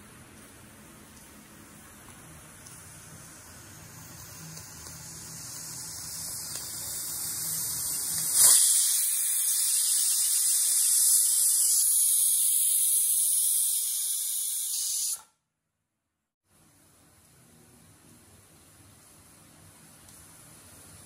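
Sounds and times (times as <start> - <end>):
steam hissing: 2.7 - 15.3
pressure cooker steam whistle: 4.1 - 15.4.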